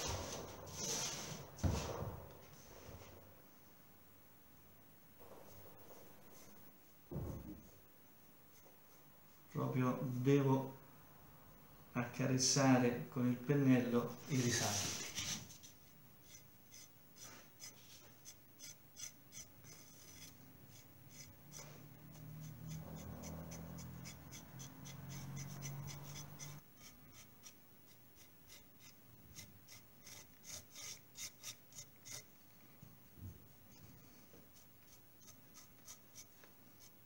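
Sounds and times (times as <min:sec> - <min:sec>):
paintbrush bristles scratching: 0:14.1 - 0:32.3, 0:33.8 - 0:37.0.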